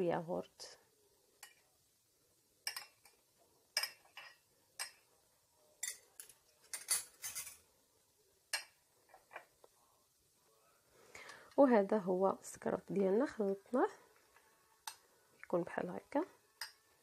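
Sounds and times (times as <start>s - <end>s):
metal spoons clinking on dish: 2.6s - 3.2s, 3.8s - 5.0s, 5.8s - 7.6s.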